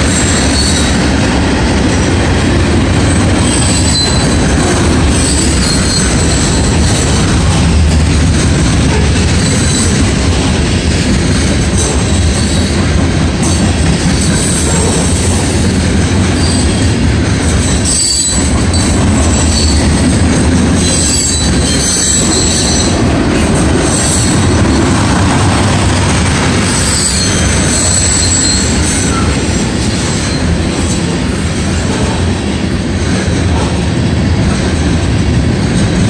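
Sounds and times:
freight train wheels rumbling on rail: 0.0s - 36.0s
high-pitched wheel squeal: 3.4s - 4.4s, 5.1s - 7.0s, 17.8s - 19.9s, 20.8s - 23.0s, 26.6s - 30.5s.

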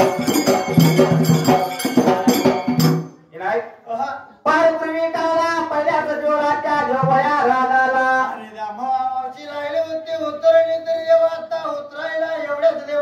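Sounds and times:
men singing folk song: 4.5s - 13.0s.

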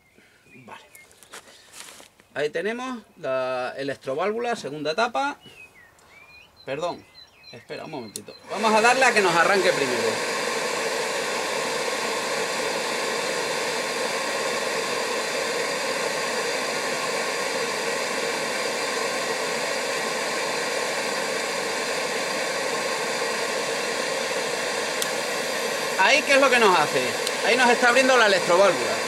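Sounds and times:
oil burner fan running: 8.1s - 29.0s.

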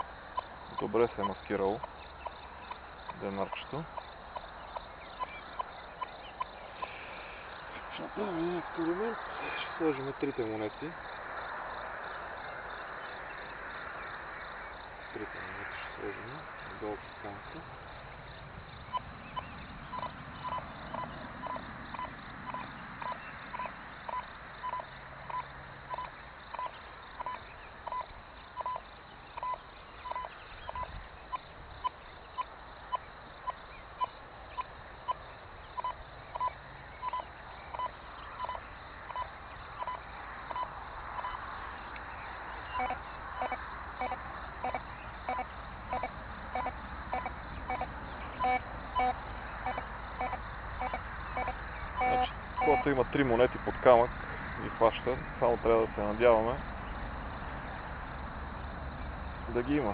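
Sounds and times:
metal detector beeps: 19.9s - 26.1s, 42.8s - 52.9s.

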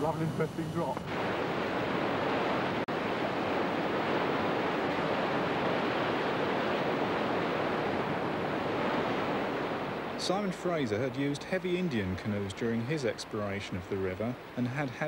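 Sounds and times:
rapids rushing over boulders: 0.0s - 15.0s.

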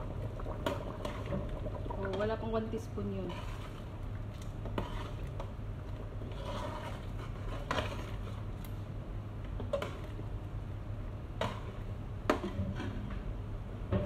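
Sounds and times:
steady low hum: 0.0s - 14.0s
metal spoon scraping a pot: 4.6s - 5.5s, 6.2s - 8.4s.

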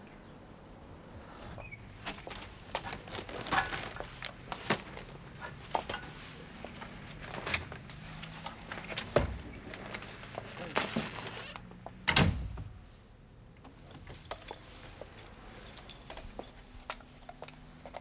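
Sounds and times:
keys jangling: 2.0s - 4.4s, 6.8s - 9.3s, 13.8s - 18.0s.

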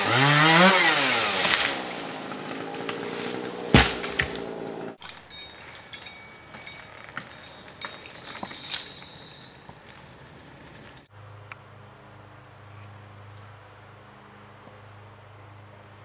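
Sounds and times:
chainsaw running: 0.0s - 9.1s
wood cracking: 0.0s - 11.1s
loud thud: 3.7s - 4.4s
birds chirping: 5.3s - 11.0s.

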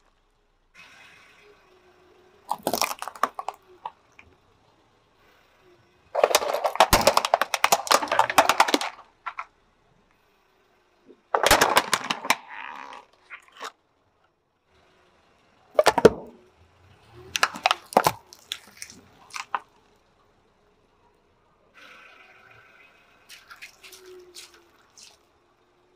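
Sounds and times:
tyre crushing plastic toy: 2.5s - 4.3s, 6.2s - 9.5s, 11.2s - 13.8s, 15.7s - 16.4s, 17.3s - 19.7s.

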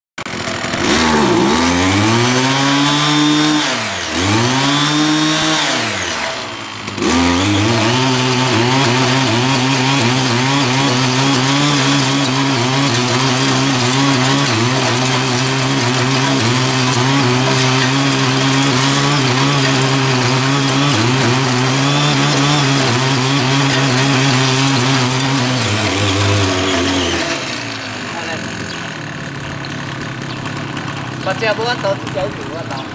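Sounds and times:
tiller engine revving: 0.2s - 32.9s.

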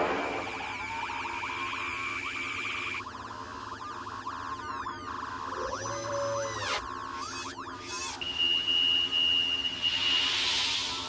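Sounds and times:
falling electronic sweep: 0.0s - 1.8s, 9.5s - 11.0s
electronic warbling chirps: 0.0s - 3.0s, 9.0s - 11.0s.

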